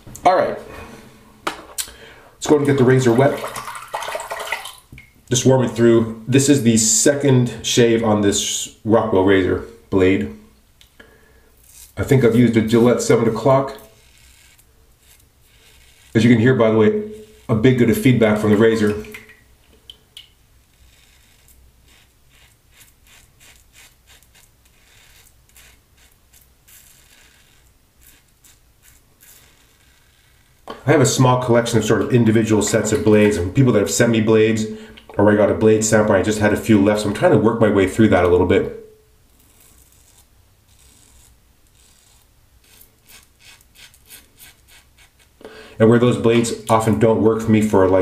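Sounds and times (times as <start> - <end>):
razor scraping stubble: 11.6 - 18.9, 20.6 - 30.8, 39.3 - 45.4.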